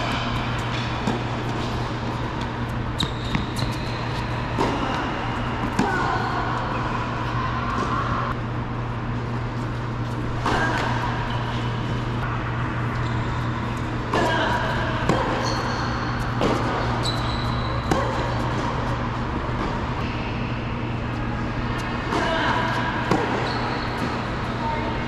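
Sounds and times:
tennis balls hit and bouncing: 0.0s - 6.9s, 13.8s - 20.0s, 22.0s - 24.4s
steady low hum: 0.0s - 25.0s.

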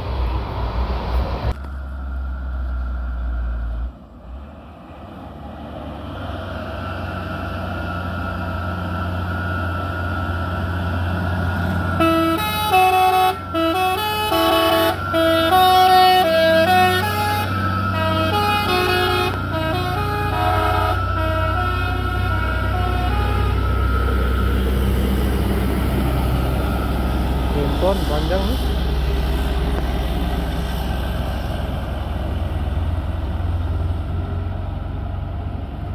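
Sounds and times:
diesel truck engine drone: 0.0s - 35.9s
musical air horn tune: 11.9s - 24.0s.

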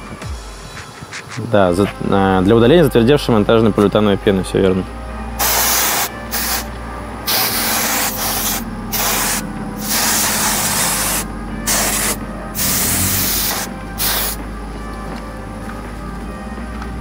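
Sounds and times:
aerosol can spraying: 5.4s - 6.7s, 7.3s - 14.4s.

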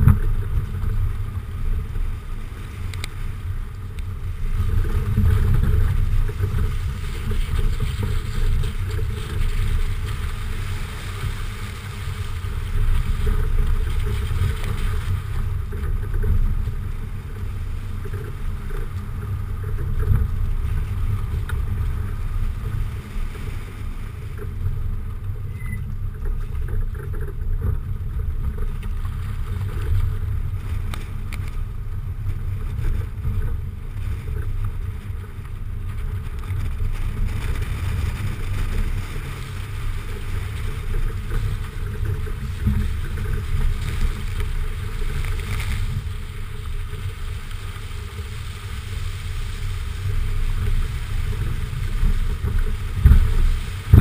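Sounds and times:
tyre and road noise: 0.0s - 54.0s
wind buffeting microphone: 0.0s - 54.0s.

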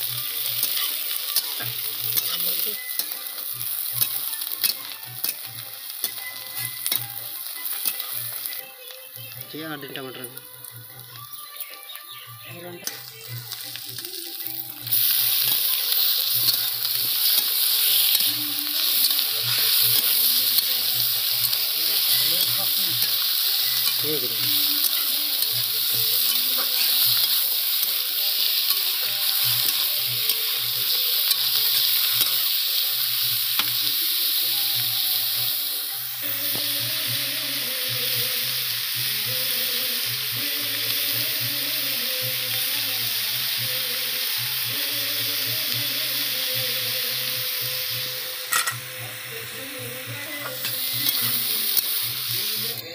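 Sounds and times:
chicken sizzling in a wok: 0.0s - 52.9s
metal spatula stirring: 0.2s - 8.2s, 14.9s - 32.5s.

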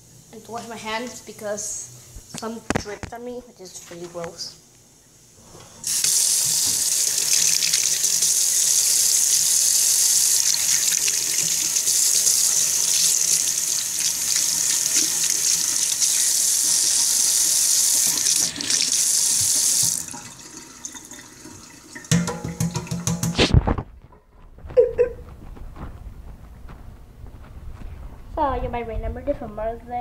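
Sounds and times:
faucet running into steel sink: 5.8s - 23.3s.

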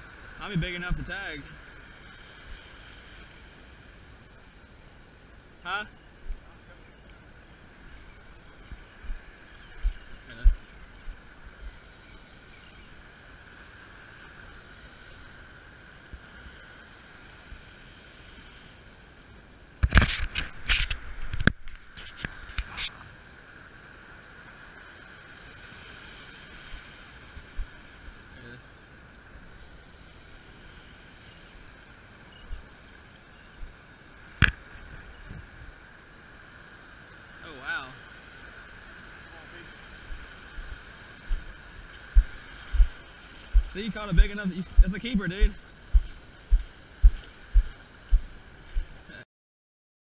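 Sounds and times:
shallow surf washing: 0.0s - 11.6s, 12.4s - 49.2s
wind buffeting microphone: 40.0s - 49.0s
dull low thumps: 42.1s - 48.9s.

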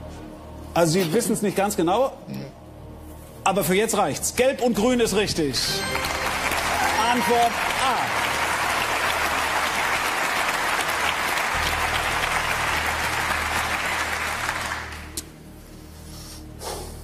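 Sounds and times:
audience applauding: 5.7s - 15.3s.

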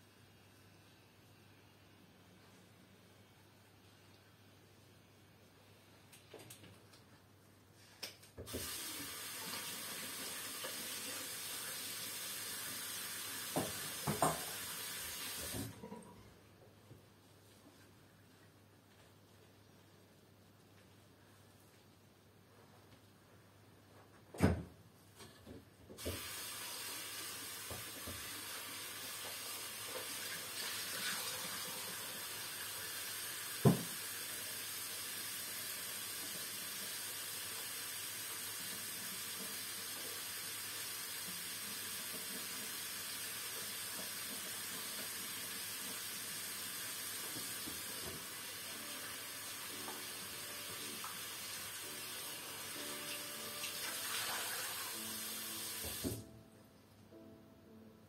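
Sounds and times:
steady hiss: 7.5s - 15.7s, 26.0s - 56.3s.

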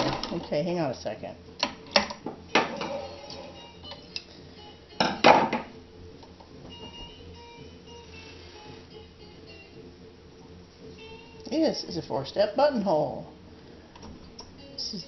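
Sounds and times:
objects knocking and clattering: 0.0s - 0.6s, 1.6s - 3.5s, 5.0s - 5.8s
faint background music: 0.0s - 15.0s.

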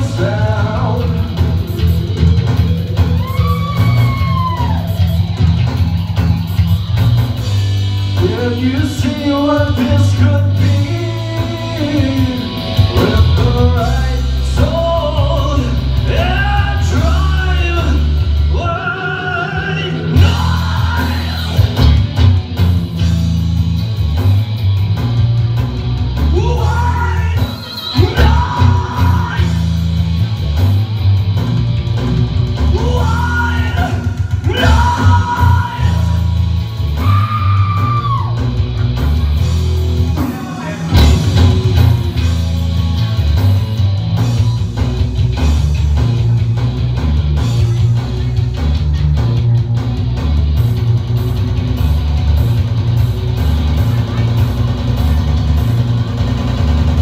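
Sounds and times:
man singing: 0.0s - 1.9s, 8.2s - 21.8s, 26.3s - 29.8s, 32.6s - 36.4s, 40.2s - 41.2s
drums: 0.0s - 57.0s
electric guitar: 0.0s - 57.0s.

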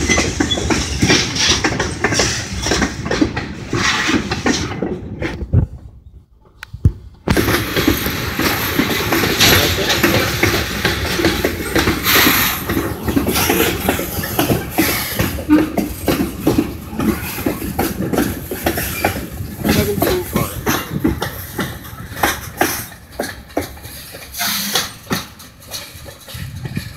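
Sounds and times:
train wheels rumbling on rails: 0.0s - 26.9s
wheels and couplers clicking: 6.4s - 26.9s.

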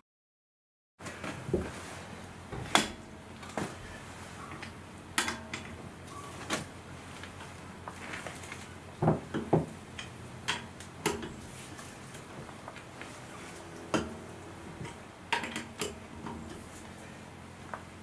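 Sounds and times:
wheel brace clanking on nuts: 2.5s - 5.8s, 13.3s - 16.9s.

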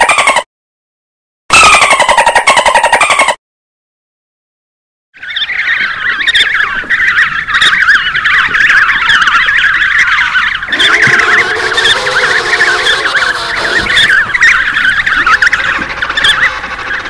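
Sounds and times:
lower penguin call: 10.7s - 17.0s
penguins braying calls: 10.7s - 17.0s.

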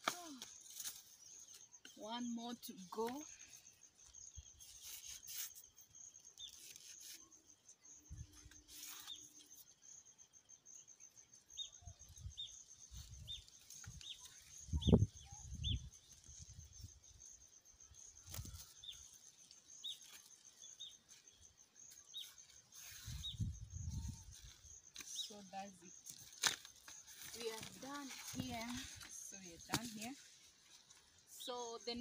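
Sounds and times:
birds chirping: 5.9s - 32.0s
leaf rustling and ripping: 26.0s - 29.1s.

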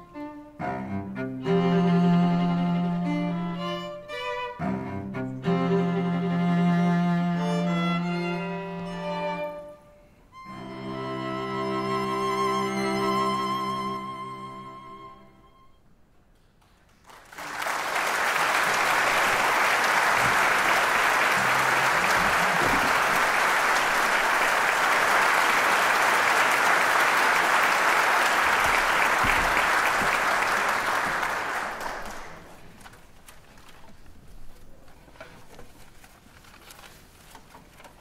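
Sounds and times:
string quartet chord: 0.0s - 9.8s, 10.4s - 15.6s, 21.2s - 23.2s
audience applause: 16.6s - 32.8s.

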